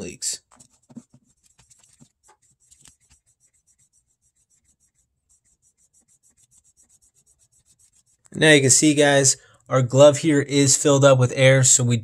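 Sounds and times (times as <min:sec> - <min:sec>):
hand air pump rubbing and clicking: 0:00.4 - 0:08.4.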